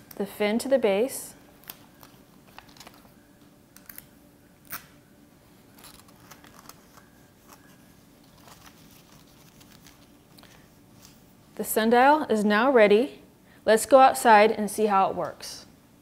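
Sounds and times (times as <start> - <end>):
paper crackle: 1.6 - 3.2, 5.6 - 11.2
paper rustling and crinkling: 1.6 - 3.2, 5.6 - 11.2.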